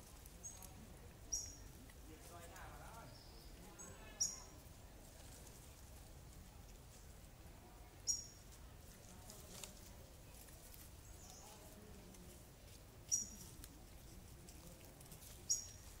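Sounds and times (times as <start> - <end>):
light rustling: 8.4 - 16.0.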